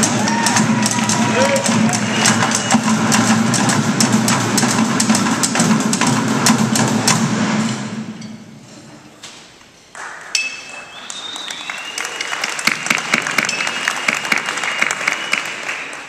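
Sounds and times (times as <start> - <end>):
audience applauding: 0.0 - 3.9, 9.9 - 16.0
percussion on barrels and metal: 0.0 - 9.6, 10.2 - 11.0, 12.1 - 15.9.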